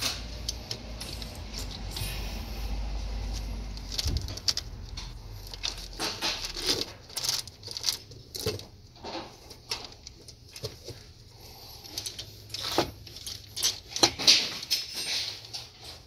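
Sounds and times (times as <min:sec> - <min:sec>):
low hum: 0:00.0 - 0:05.9
metal chain links clinking: 0:11.8 - 0:16.0.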